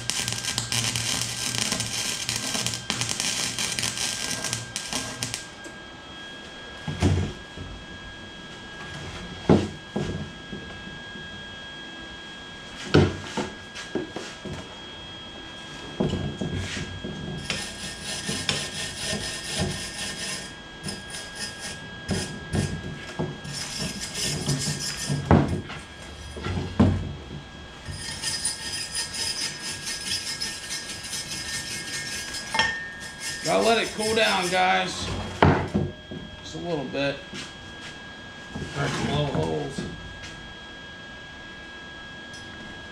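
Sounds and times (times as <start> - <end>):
welder crackling sizzle: 0.0 - 5.7, 17.4 - 25.6, 27.8 - 35.1.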